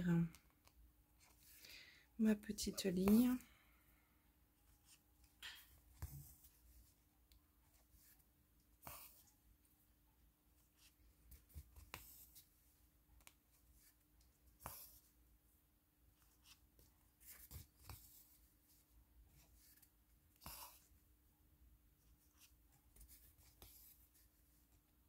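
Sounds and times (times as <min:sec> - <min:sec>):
needle and thread through canvas: 0:02.9 - 0:03.5, 0:04.6 - 0:09.4, 0:16.2 - 0:21.0.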